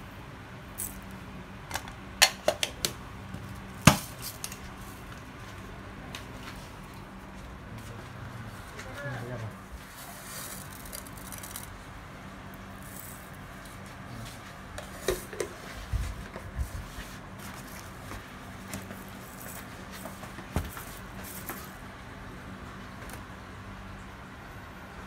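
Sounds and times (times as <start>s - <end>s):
spices rattling in metal jar: 10.4s - 11.8s.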